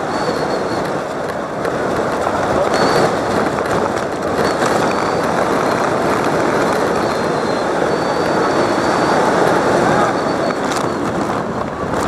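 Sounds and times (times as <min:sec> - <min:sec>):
crowd noise: 0:00.0 - 0:12.0
sneaker squeaks: 0:02.6 - 0:03.2, 0:04.3 - 0:05.9.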